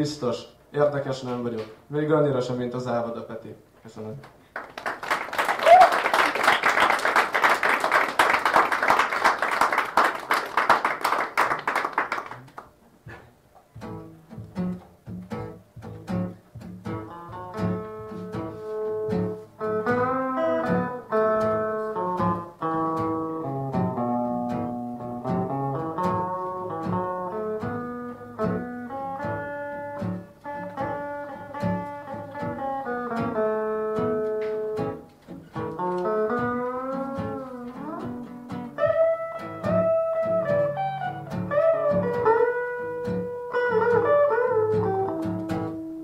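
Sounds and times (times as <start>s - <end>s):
audience applauding: 4.5s - 12.7s
guitar playing slow tune: 13.0s - 46.0s.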